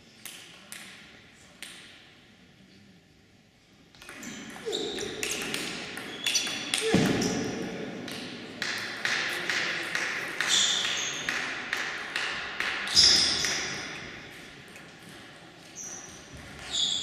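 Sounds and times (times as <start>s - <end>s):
table tennis ball bouncing: 4.0s - 14.0s
sneaker squeaks on wooden floor: 10.5s - 11.3s, 12.9s - 13.6s, 15.8s - 17.0s.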